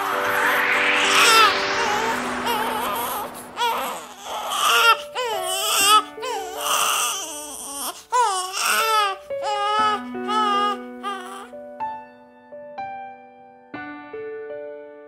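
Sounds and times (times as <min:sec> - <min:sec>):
soft music with held notes: 0:00.0 - 0:15.0
newborn baby crying: 0:03.0 - 0:11.5.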